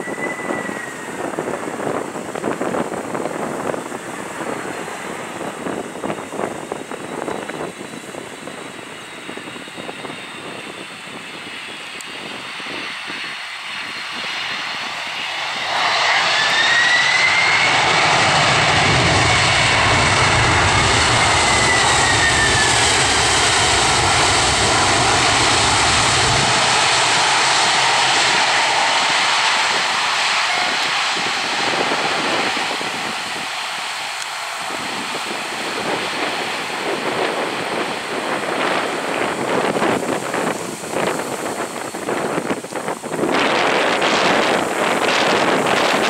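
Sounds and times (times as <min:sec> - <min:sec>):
jet engines whining: 0:00.0 - 0:46.0
deep rumble: 0:13.7 - 0:46.0.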